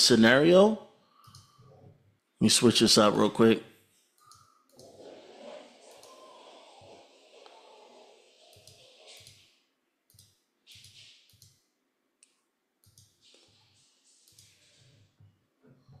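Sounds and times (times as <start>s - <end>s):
computer mouse clicks: 1.2s - 1.6s, 4.2s - 5.0s, 5.9s - 6.2s, 8.5s - 9.5s, 10.1s - 11.6s, 12.2s - 13.6s, 14.2s - 14.9s.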